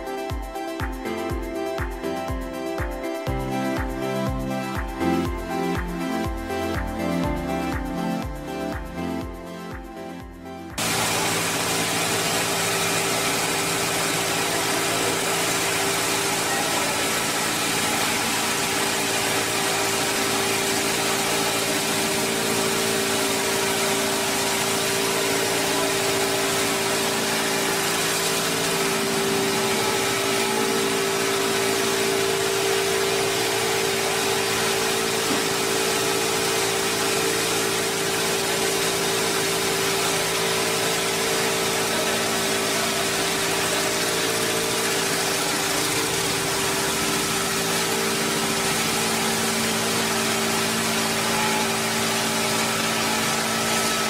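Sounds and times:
log rounding machine drone: 0:00.0 - 0:54.0
blower hiss: 0:10.8 - 0:54.0.

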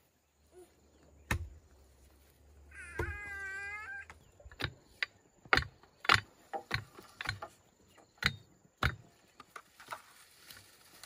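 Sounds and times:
sharp knocks: 0:04.5 - 0:07.6.

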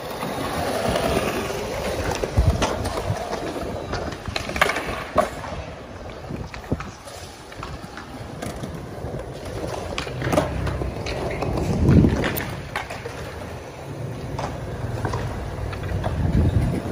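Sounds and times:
skateboard wheels rolling on stone: 0:00.0 - 0:16.9
wind on microphone: 0:01.1 - 0:07.8, 0:11.4 - 0:12.7, 0:16.0 - 0:16.9.

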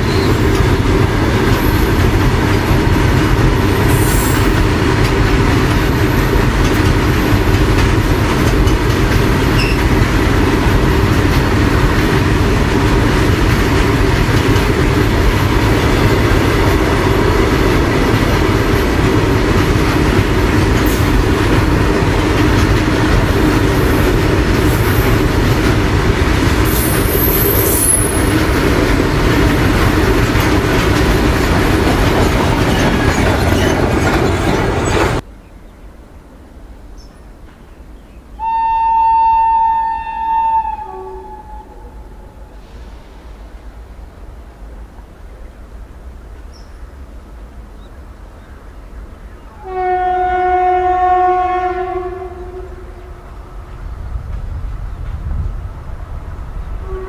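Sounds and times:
train wheels rumbling on rails: 0:00.0 - 0:35.3, 0:39.8 - 0:57.0
high-pitched wheel squeals: 0:09.6 - 0:09.8.

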